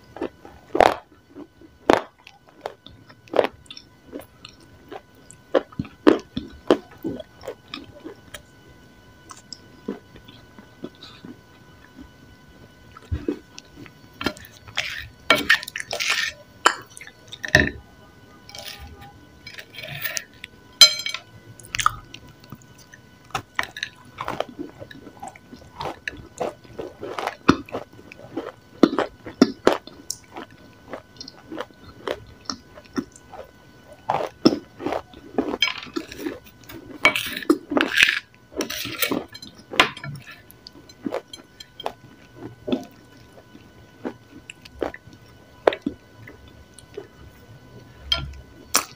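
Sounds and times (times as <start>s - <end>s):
chewing crumbly clay: 0.0s - 8.5s, 9.2s - 12.2s, 12.9s - 17.7s, 21.6s - 48.9s
metal spoon scraping a plate: 14.2s - 16.4s, 35.6s - 40.4s.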